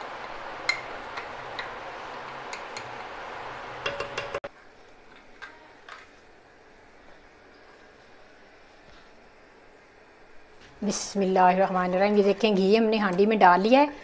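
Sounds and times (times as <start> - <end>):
spatula tapping glass bowl: 3.8 - 4.5.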